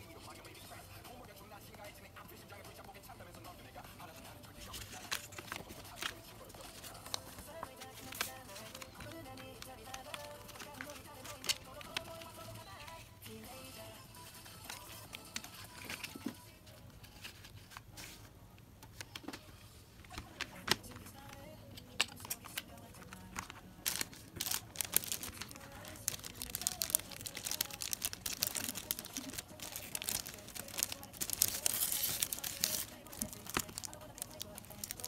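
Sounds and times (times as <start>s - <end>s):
plastic sleeve crinkling: 4.5s - 13.0s, 20.1s - 35.0s.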